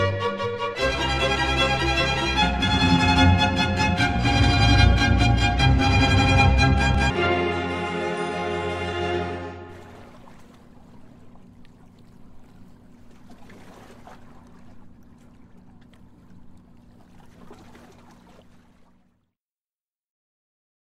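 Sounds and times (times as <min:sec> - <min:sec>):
orchestral music: 0:00.0 - 0:09.8
low steady hum: 0:00.8 - 0:19.2
faint water sounds: 0:08.2 - 0:19.4.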